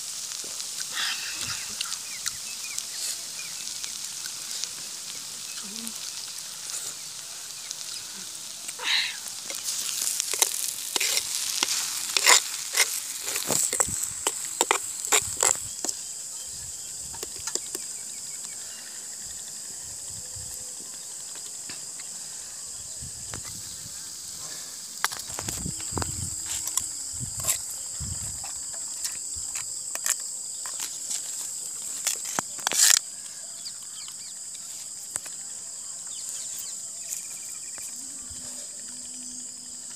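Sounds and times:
insects buzzing: 0:00.0 - 0:39.9
metal spoon scraping clay pot: 0:09.5 - 0:15.6.

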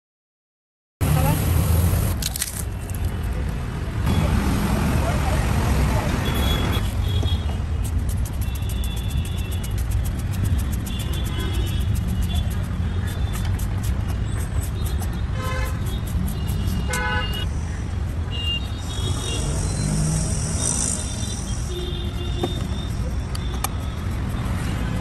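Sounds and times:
street traffic rumbling: 0:01.0 - 0:25.0
vehicle horns honking: 0:06.2 - 0:07.6, 0:10.8 - 0:13.5, 0:14.1 - 0:17.5, 0:21.2 - 0:25.0.

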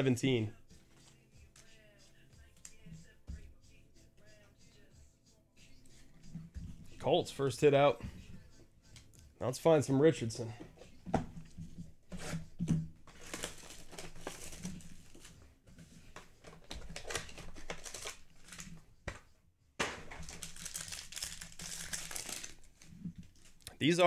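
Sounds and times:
foil wrapper tearing and crinkling: 0:13.1 - 0:15.3, 0:16.6 - 0:18.7, 0:20.2 - 0:22.9.

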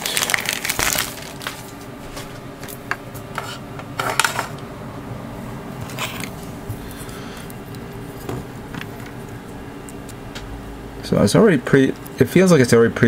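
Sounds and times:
plastic bag crinkling: 0:00.0 - 0:01.8.

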